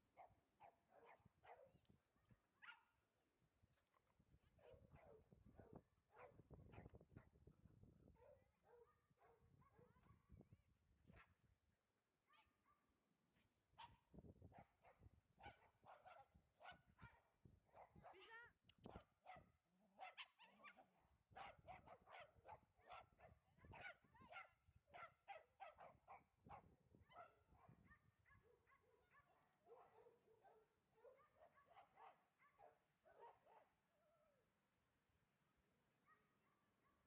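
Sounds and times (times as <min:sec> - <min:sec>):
dogs barking: 0:20.0 - 0:26.3, 0:27.2 - 0:33.7.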